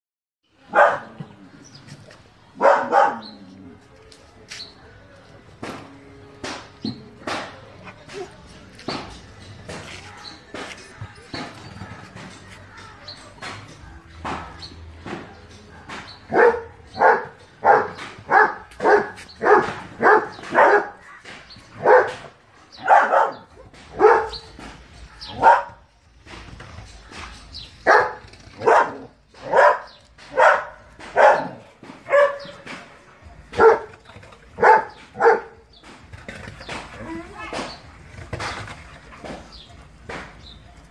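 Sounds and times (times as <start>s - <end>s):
dog barking: 0.7s - 1.2s, 2.6s - 3.3s, 15.8s - 21.0s, 21.8s - 24.4s, 25.2s - 25.8s, 27.8s - 32.6s, 33.2s - 34.0s, 34.6s - 35.6s.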